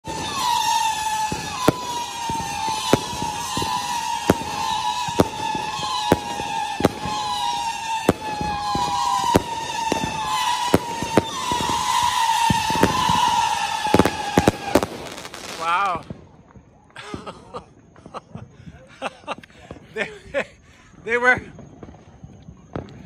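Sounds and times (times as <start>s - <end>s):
firework whistles: 0.0s - 16.5s
firework bangs: 0.0s - 17.3s.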